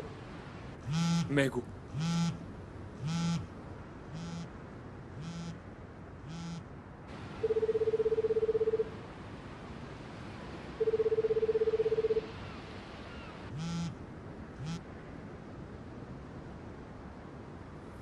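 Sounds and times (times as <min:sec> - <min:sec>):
telephone ringback tone: 0:07.4 - 0:08.9, 0:10.8 - 0:12.3.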